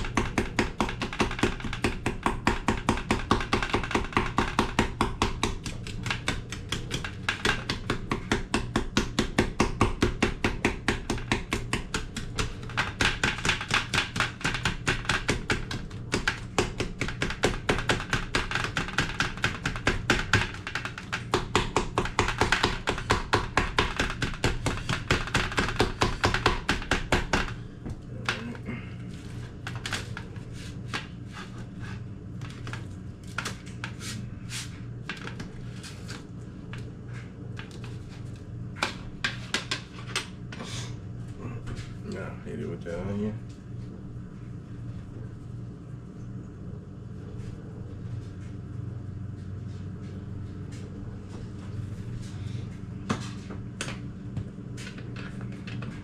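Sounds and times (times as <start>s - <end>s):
knife chopping on cutting board: 0.0s - 27.6s.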